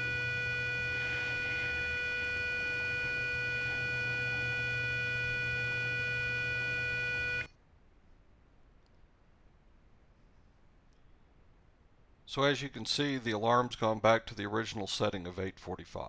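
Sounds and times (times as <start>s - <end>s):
alarm buzzer steady tone: 0.0s - 7.5s.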